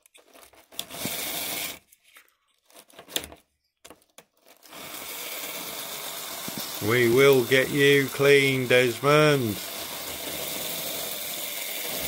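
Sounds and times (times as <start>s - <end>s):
model train motor whirring: 0.8s - 1.8s, 4.6s - 12.0s.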